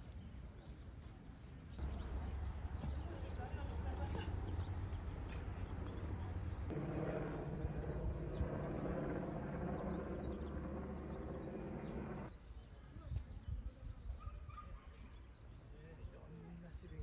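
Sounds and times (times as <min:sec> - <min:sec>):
low mechanical hum: 0:03.8 - 0:12.3.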